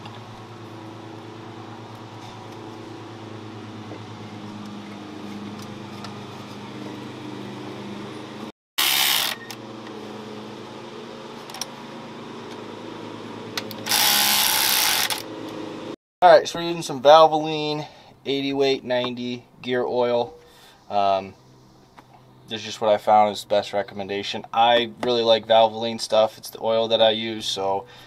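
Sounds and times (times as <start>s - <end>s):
cordless ratchet bursts: 8.8s - 9.6s, 13.8s - 15.3s.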